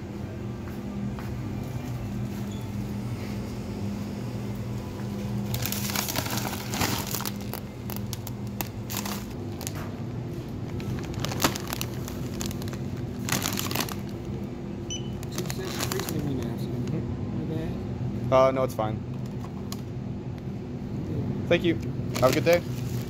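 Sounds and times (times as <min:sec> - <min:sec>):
steady low hum: 0:00.0 - 0:23.0
plastic chip bag crinkling: 0:05.4 - 0:09.8, 0:10.7 - 0:14.3, 0:15.2 - 0:16.5, 0:22.1 - 0:23.0.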